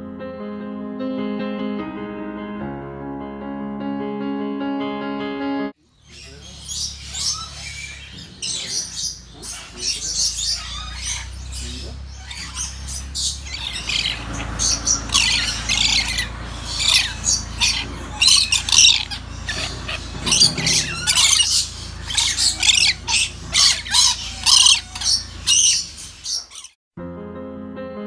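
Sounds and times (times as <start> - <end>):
parrots making harsh calls: 6.2 - 26.8.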